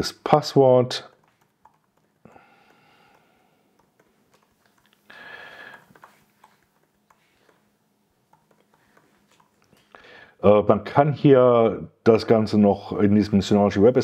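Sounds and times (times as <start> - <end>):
keyboard keystrokes: 1.1 - 2.1.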